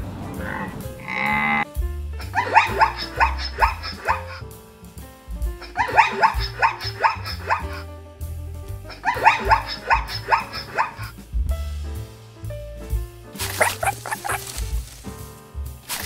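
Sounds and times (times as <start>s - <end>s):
background music: 0.0s - 16.0s
zebra barking: 0.3s - 1.7s, 2.3s - 4.4s, 5.6s - 7.8s, 8.9s - 11.1s, 13.4s - 14.6s.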